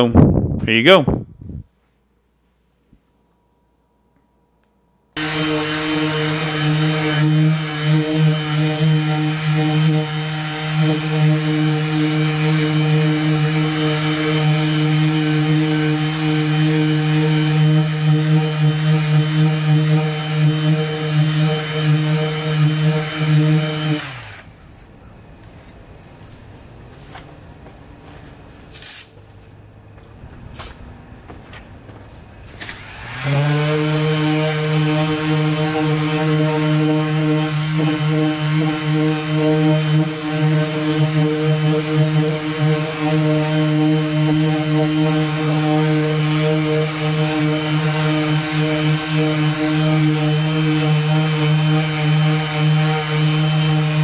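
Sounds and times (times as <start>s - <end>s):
orbital sander humming: 5.2s - 24.5s, 32.8s - 54.0s.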